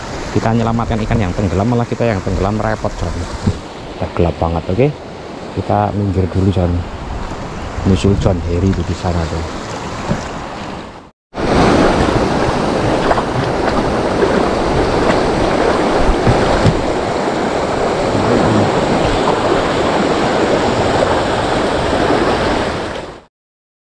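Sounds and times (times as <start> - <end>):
river rushing over rocks: 11.4 - 23.2.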